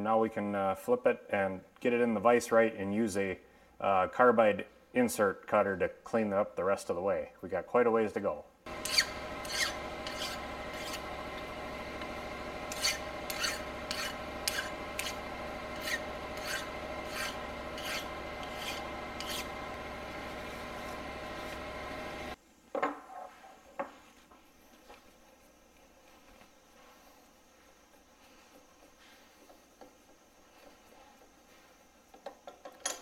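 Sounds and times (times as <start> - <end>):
hand file scraping metal: 8.7 - 22.4
steady hum: 8.7 - 22.4.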